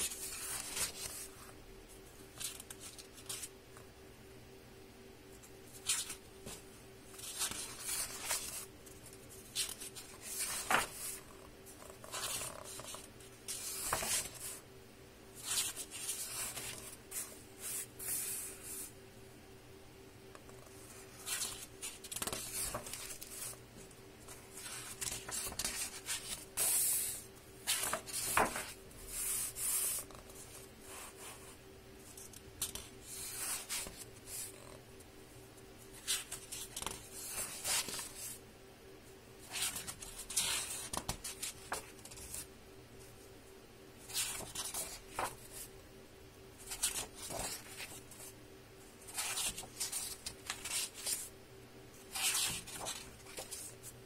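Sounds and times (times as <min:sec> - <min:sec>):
book pages rustling: 0:00.0 - 0:01.6, 0:02.3 - 0:03.5, 0:05.7 - 0:14.6, 0:15.4 - 0:18.9, 0:20.5 - 0:31.3, 0:35.9 - 0:38.4, 0:39.4 - 0:42.5, 0:44.0 - 0:45.7, 0:46.6 - 0:48.3, 0:49.0 - 0:51.3, 0:52.1 - 0:54.0
faint steady hum: 0:00.0 - 0:54.0.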